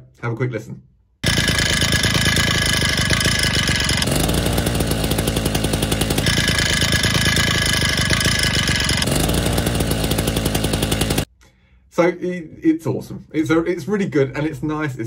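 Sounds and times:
chainsaw engine running: 1.2s - 11.3s.

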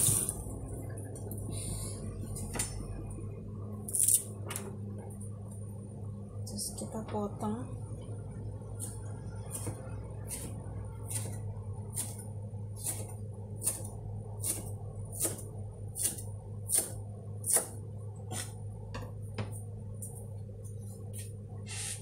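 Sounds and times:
knife chopping herbs on cutting board: 12.8s - 15.4s, 16.0s - 18.6s.

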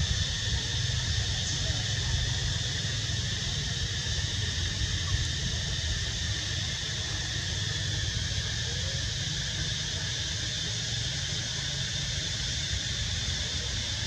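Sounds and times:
constant hiss: 0.0s - 14.0s.

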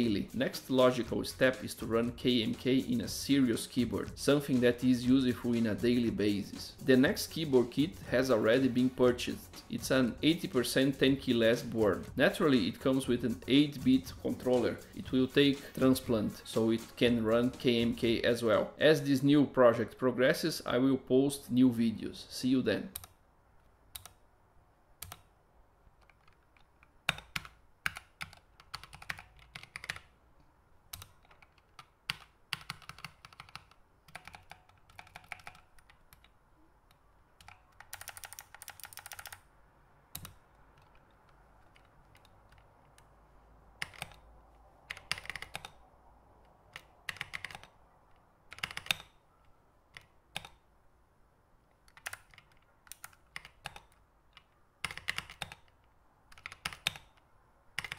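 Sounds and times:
keypad keys clicking: 23.9s - 24.2s, 25.0s - 25.3s, 26.0s - 30.1s, 30.9s - 36.4s, 37.4s - 39.5s, 40.1s - 43.1s, 43.7s - 49.2s, 49.9s - 50.6s, 51.8s - 57.9s.

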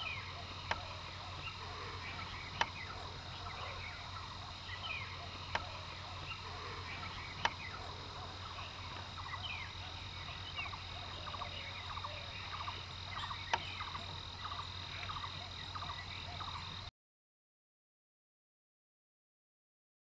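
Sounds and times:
bird chirps and calls: 0.0s - 16.8s
high insect drone: 0.0s - 16.9s
sharp clicks: 2.5s - 2.8s, 7.3s - 7.7s, 13.4s - 14.0s.

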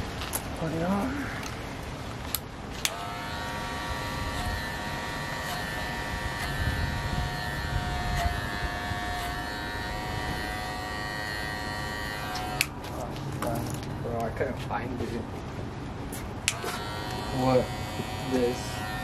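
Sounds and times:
electric hair clippers buzzing: 2.8s - 12.8s, 16.5s - 19.0s.

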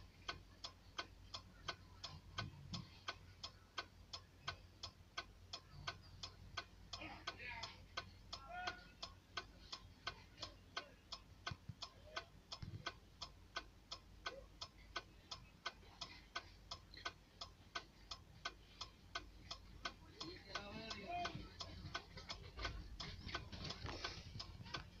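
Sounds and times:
steady ticking clicks: 0.0s - 25.0s
faint voices: 19.7s - 25.0s.

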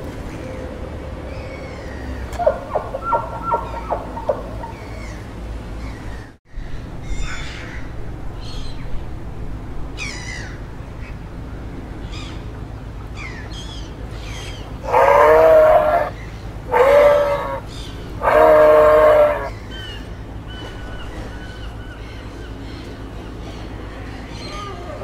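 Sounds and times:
loud drawn-out animal calls: 0.4s - 7.9s, 13.1s - 20.0s
small birds chirping: 1.3s - 6.4s, 12.0s - 25.0s.

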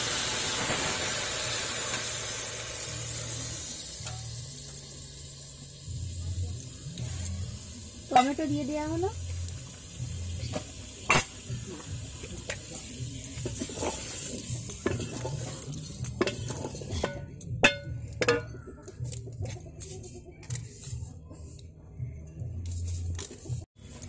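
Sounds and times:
hot oil sizzling: 0.0s - 19.2s
spatula scraping a metal pot: 13.5s - 18.6s.

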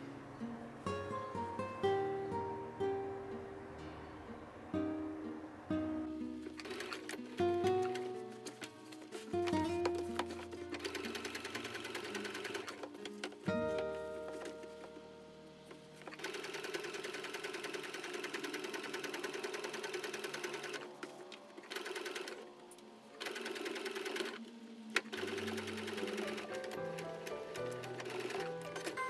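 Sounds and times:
sewing machine stitching: 6.4s - 8.7s, 9.9s - 14.5s, 16.0s - 21.0s, 21.6s - 22.4s, 23.2s - 24.4s, 25.0s - 29.0s.

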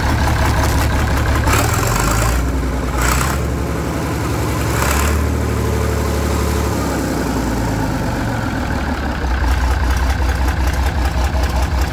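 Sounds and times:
diesel engine running: 0.0s - 11.9s.

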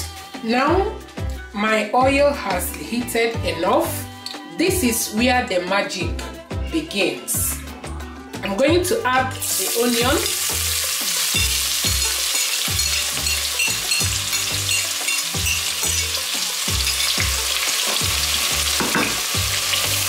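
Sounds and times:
onion sizzling in hot oil: 9.4s - 20.0s.

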